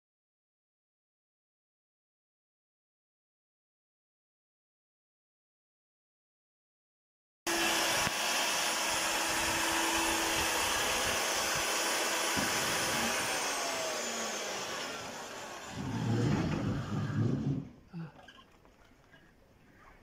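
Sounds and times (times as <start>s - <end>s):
core drill grinding into concrete: 7.5s - 17.8s.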